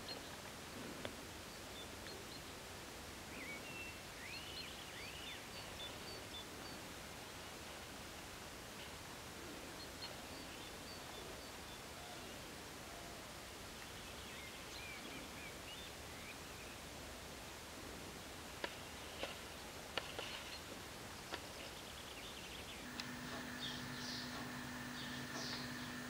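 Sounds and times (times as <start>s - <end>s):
steady low hiss: 0.0s - 26.0s
sharp clicks: 22.9s - 26.0s.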